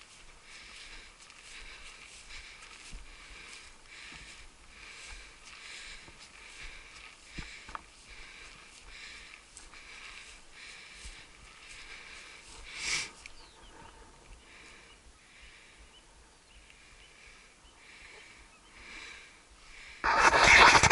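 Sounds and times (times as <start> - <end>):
footsteps swishing through grass: 0.0 - 14.8.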